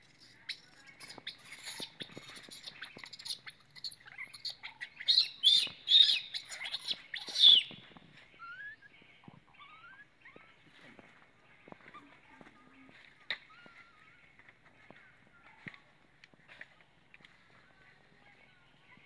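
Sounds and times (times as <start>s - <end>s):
infant monkey screaming: 9.6s - 10.4s.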